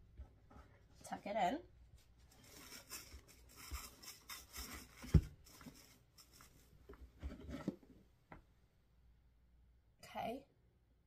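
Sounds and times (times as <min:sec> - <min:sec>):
hands rustling fabric ribbon: 0:02.0 - 0:07.0.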